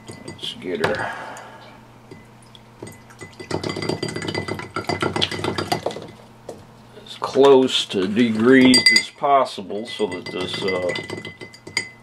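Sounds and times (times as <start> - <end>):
faint hum: 0.0 - 12.0
metal parts clinking against glass: 9.9 - 12.0.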